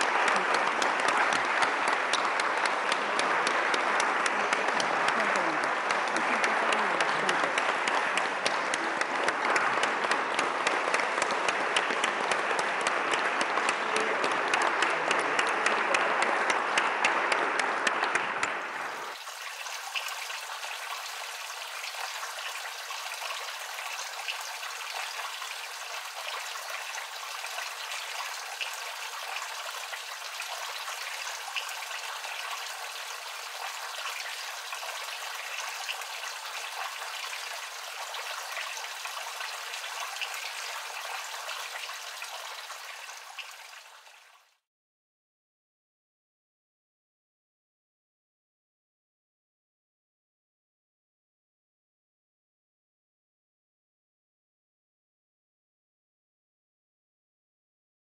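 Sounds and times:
audience applauding: 0:00.0 - 0:44.1.

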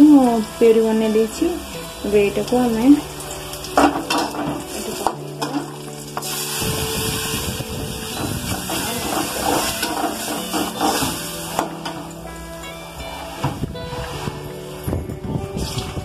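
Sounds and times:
spice paste sizzling in oil: 0:00.0 - 0:13.4
metal spatula scraping onions: 0:08.1 - 0:12.1.

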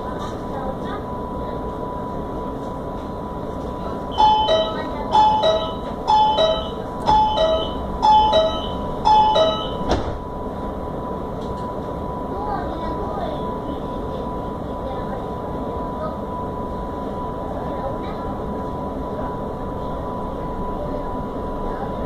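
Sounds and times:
train carriage hum: 0:00.0 - 0:22.0
train door warning chime: 0:04.0 - 0:15.6
sharp thump: 0:09.8 - 0:10.3.

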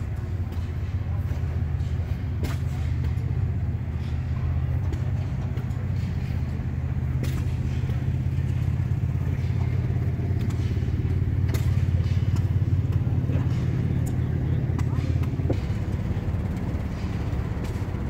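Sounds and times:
old gas engines chugging: 0:00.0 - 0:18.0.

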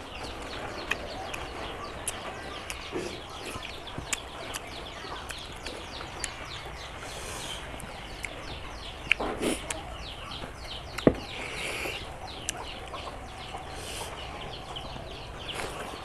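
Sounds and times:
small birds chirping: 0:00.0 - 0:16.0
man eating mouth smacks: 0:09.0 - 0:09.8.

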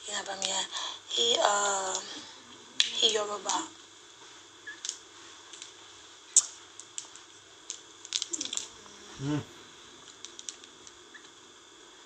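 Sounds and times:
woman's low hum: 0:08.3 - 0:09.7.

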